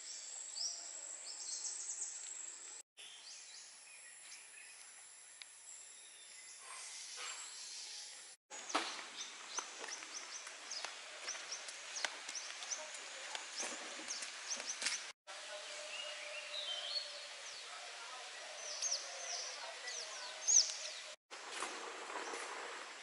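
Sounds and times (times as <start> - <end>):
birds chirping: 0.0 - 21.2.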